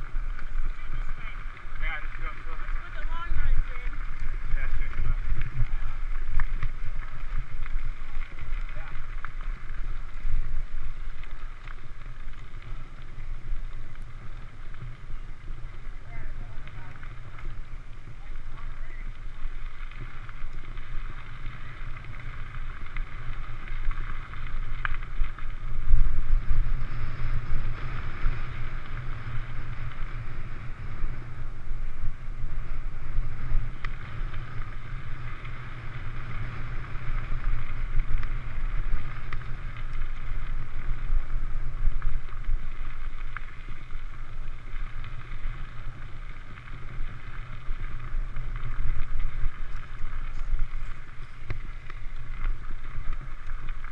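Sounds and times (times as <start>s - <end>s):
bike tyres rolling on gravel: 0.0s - 53.9s
wind buffeting camera: 0.0s - 53.9s.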